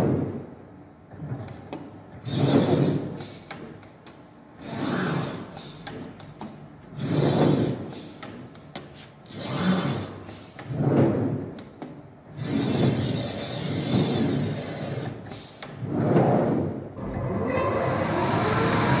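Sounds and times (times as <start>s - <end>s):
glass cutting machine running: 17.0s - 19.0s
motor whine: 17.0s - 19.0s.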